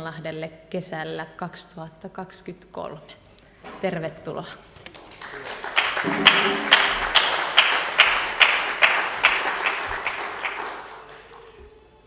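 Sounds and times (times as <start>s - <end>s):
audience applauding: 5.0s - 11.6s.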